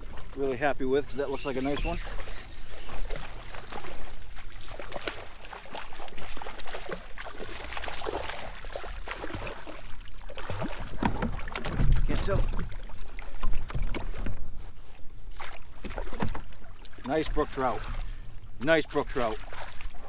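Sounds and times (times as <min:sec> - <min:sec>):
fish splashing in water: 0:01.3 - 0:14.3.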